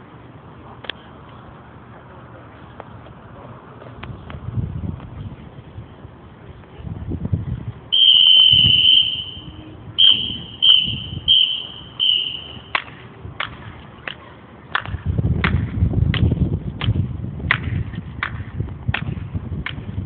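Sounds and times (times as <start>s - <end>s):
whistle blasts: 7.9s - 12.8s.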